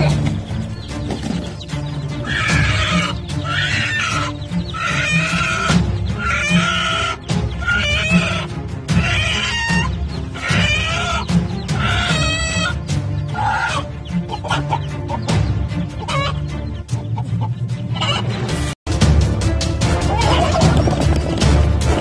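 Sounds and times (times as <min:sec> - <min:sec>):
hen squawking harshly: 0:02.2 - 0:14.9.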